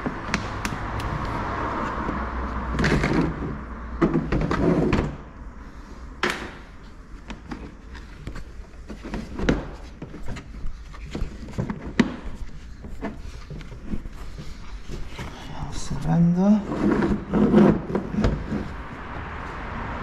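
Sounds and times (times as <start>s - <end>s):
plastic parts clicking and knocking: 7.2s - 14.0s.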